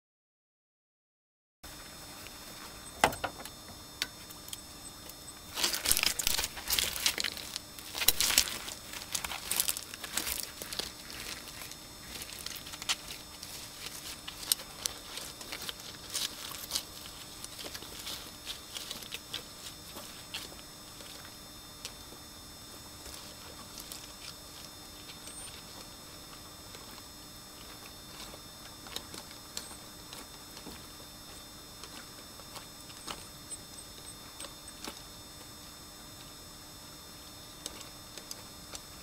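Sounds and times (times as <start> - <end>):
wheelchair wheels rolling over stones: 5.5 - 21.4, 23.0 - 33.4.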